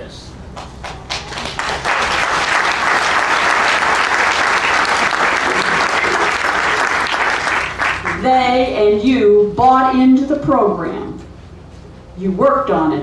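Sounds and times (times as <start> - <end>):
audience applauding: 0.6 - 8.2.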